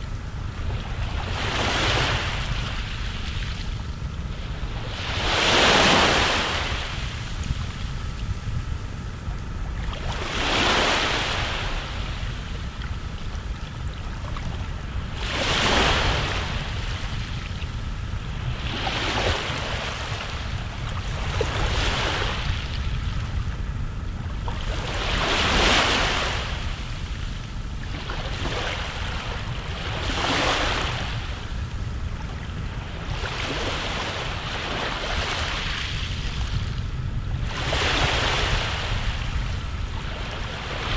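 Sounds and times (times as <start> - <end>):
steady low rumble: 0.0 - 40.9
sea waves breaking: 4.4 - 7.5, 9.8 - 12.4, 15.2 - 17.3, 18.4 - 22.8, 24.5 - 27.0, 27.9 - 31.5.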